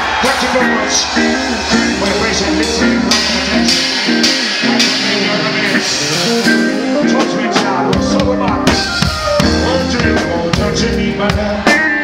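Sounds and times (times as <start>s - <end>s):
reggae band playing: 0.0s - 12.0s
held bass note: 1.7s - 6.8s.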